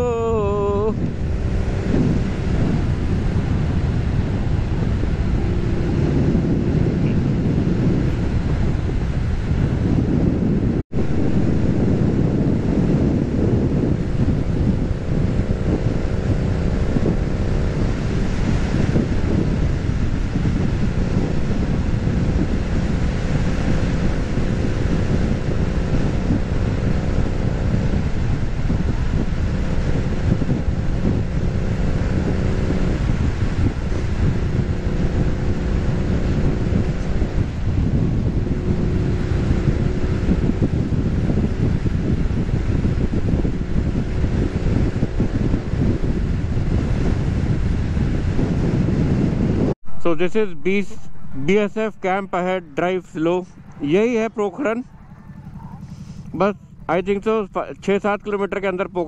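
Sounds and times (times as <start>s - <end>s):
motorcycle engine running: 0.0s - 59.0s
wind buffeting microphone: 0.0s - 59.0s.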